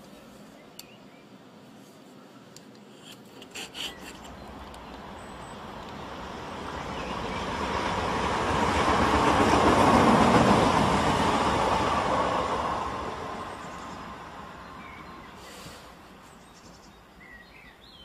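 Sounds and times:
train passing by: 4.2 - 17.6.

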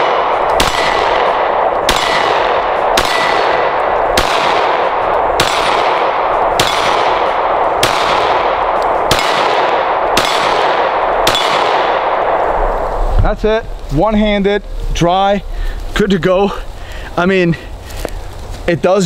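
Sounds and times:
pistol shots with echo: 0.0 - 12.6
steady rushing noise: 0.0 - 19.0.

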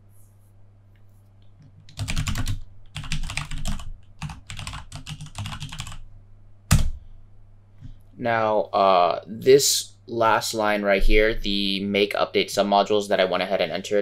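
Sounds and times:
typing on computer keyboard: 1.9 - 6.0.

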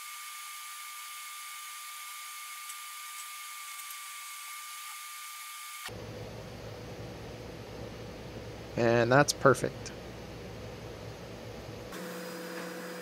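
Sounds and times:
thin steady whine: 5.8 - 13.0.

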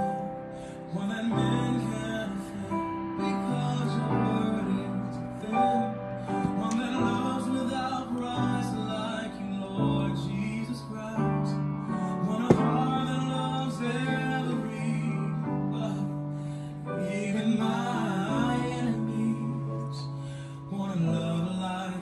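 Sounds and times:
person singing: 0.0 - 22.0
piano chords: 0.0 - 22.0.

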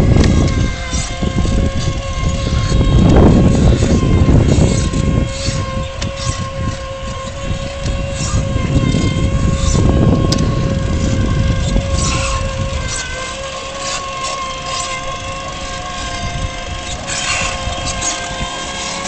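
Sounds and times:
electric motor whining: 0.0 - 19.0
wind noise: 0.0 - 19.0.

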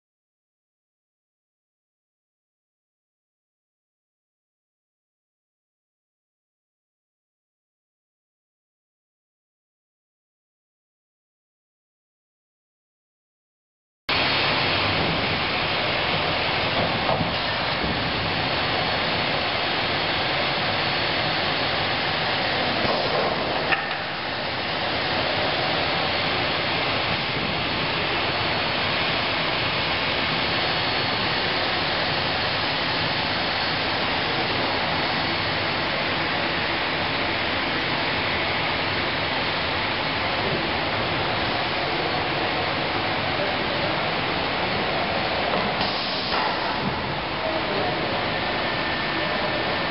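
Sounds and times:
woodworking machinery running: 14.1 - 49.9.

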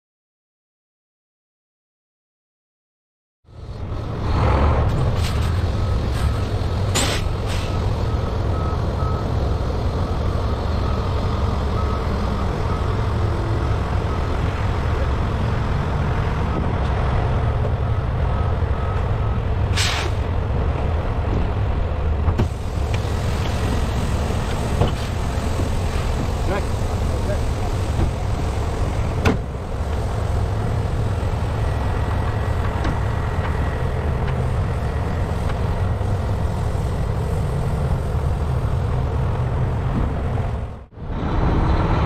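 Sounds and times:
diesel truck engine running: 3.5 - 42.0
air brake hiss: 6.2 - 7.8, 19.7 - 20.2
reversing alarm beeping: 7.6 - 14.5.

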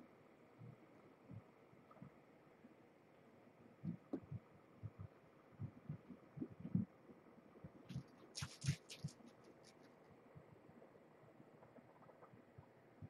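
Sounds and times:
sharp rustling clicks: 7.9 - 10.0.

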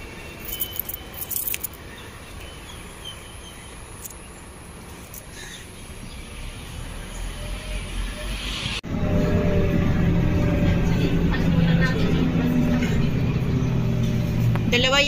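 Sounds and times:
distant traffic hum: 0.0 - 15.0
handling clicks and rattles: 0.4 - 1.8.

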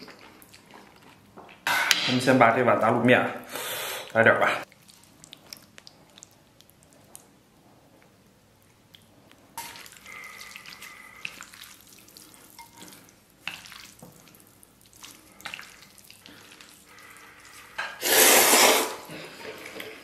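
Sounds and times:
chopsticks stirring noodles in bowl: 9.6 - 20.0
loud slurp of noodles: 18.0 - 19.1.

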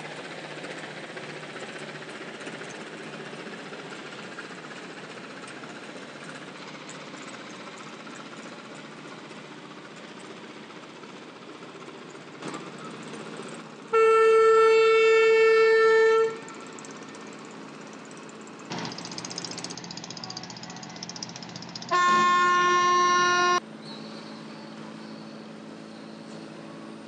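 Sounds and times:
low hum of engines: 0.0 - 27.0
ship's horn blasts: 13.9 - 16.7, 21.9 - 23.6.

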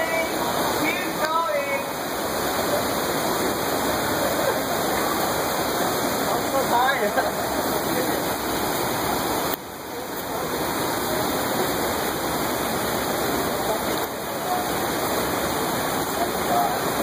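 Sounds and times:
small waterfall rushing: 0.0 - 17.0.

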